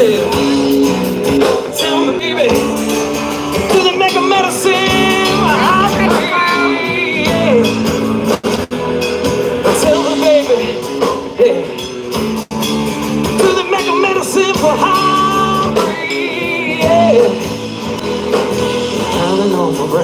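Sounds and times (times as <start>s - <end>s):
live rock band playing: 0.0s - 20.0s
person singing: 1.4s - 8.0s, 13.2s - 17.7s.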